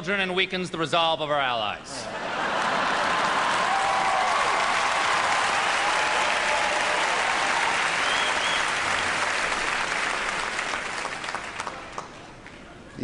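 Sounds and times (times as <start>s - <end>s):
large audience applauding: 2.4s - 12.6s.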